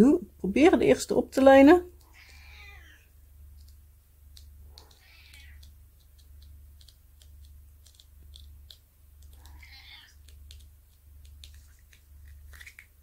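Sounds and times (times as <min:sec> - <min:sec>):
low steady hum: 0:00.0 - 0:13.0
pen tip clicking and tapping: 0:03.6 - 0:09.5.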